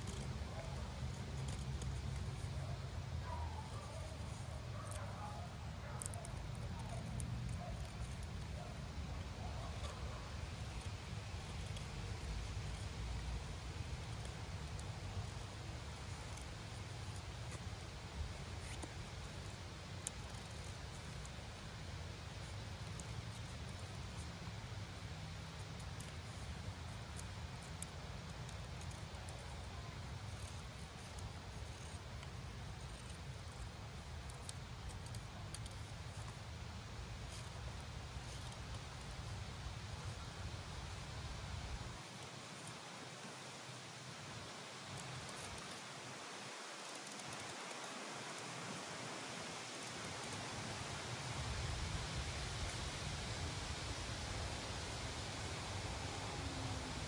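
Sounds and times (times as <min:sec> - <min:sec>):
knife shaving wood ticks: 0:00.0 - 0:41.4, 0:44.8 - 0:47.9
background hiss: 0:00.0 - 0:57.0.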